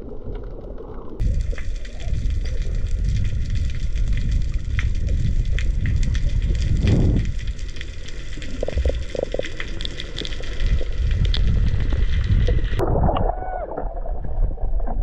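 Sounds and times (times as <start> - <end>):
faint crackling clicks: 0.0 - 12.8
muffled rumble of moving water: 0.0 - 15.0.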